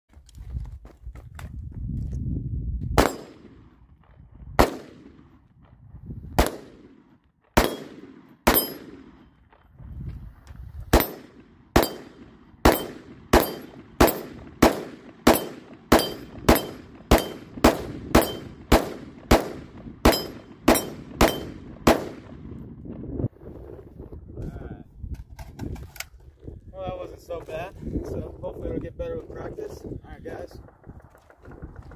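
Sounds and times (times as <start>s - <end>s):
rifle shots with echo: 3.0s - 4.0s, 4.6s - 5.5s, 6.4s - 9.6s, 10.9s - 22.6s.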